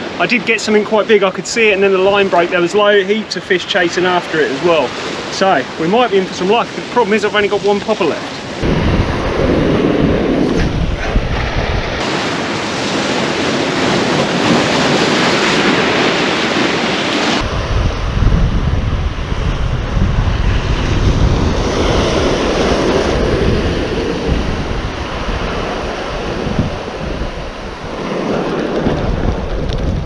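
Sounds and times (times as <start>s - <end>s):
ocean surf breaking over rocks: 0.0s - 30.0s
wind buffeting microphone: 8.4s - 30.0s
heavy low rumble: 8.6s - 12.0s, 17.4s - 30.0s.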